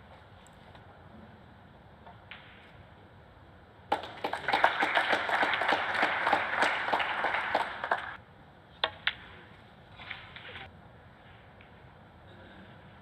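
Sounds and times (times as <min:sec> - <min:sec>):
audience applauding: 0:03.9 - 0:08.2.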